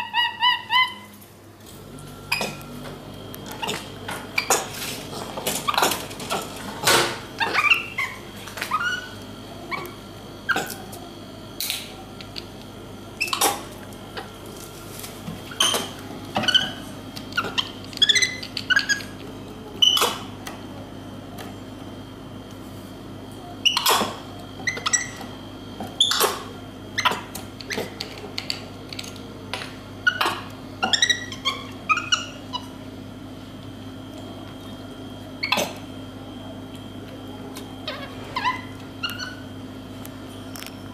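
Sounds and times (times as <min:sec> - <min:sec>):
monkey squeaky calls: 0:00.0 - 0:01.1, 0:07.4 - 0:09.1, 0:17.4 - 0:19.1, 0:30.0 - 0:32.7, 0:37.9 - 0:39.4
steady low hum: 0:00.0 - 0:40.9.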